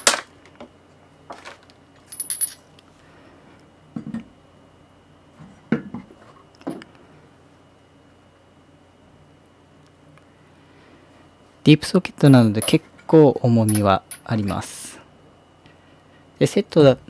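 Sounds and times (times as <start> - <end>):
metal sockets clinking together: 13.7 - 14.6.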